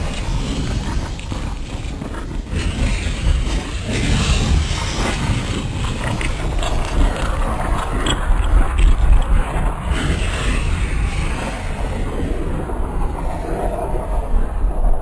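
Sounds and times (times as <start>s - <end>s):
deep rumble: 0.0s - 15.0s
rushing noise: 0.0s - 15.0s.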